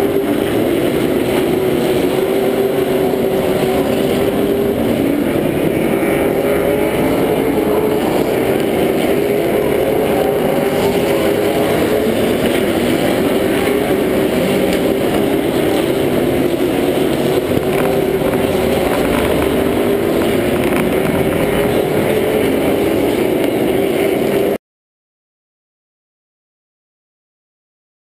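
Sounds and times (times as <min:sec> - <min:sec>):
race car engine idling: 0:11.9 - 0:23.6.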